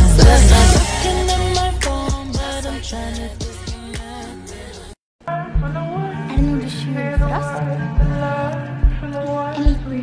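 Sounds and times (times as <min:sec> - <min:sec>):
kick drum beat: 0:05.6 - 0:08.2, 0:08.8 - 0:09.1.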